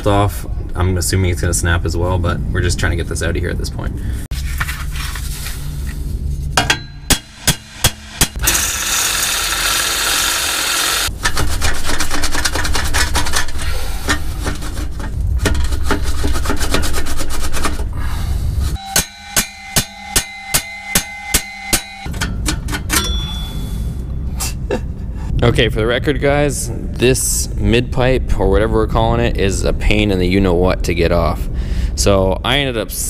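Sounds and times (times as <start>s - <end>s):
metal scraping and rubbing: 7.2s - 17.9s, 18.6s - 22.9s
hammer blows on steel pipe: 18.8s - 22.2s.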